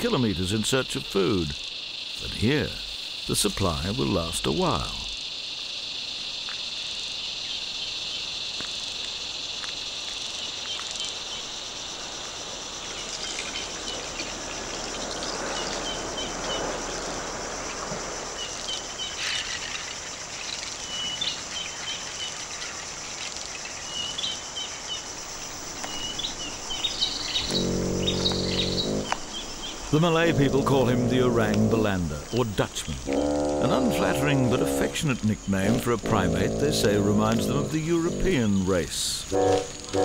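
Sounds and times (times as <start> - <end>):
insects droning: 0.0 - 40.0
short high chirps: 27.4 - 29.2.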